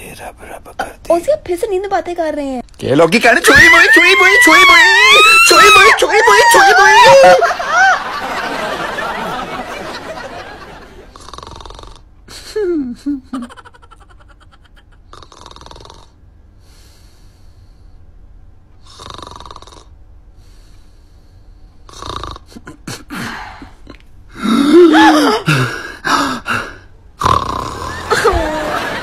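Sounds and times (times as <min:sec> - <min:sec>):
man snoring: 0:11.1 - 0:12.0, 0:15.1 - 0:16.2, 0:18.8 - 0:19.9, 0:21.9 - 0:23.0, 0:24.4 - 0:28.5.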